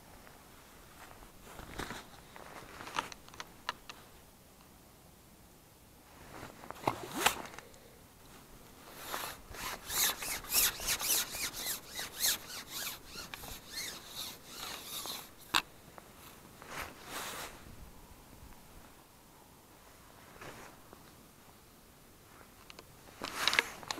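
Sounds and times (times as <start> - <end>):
sleeves scraping fishing pole: 6.8 - 7.6, 8.9 - 15.6.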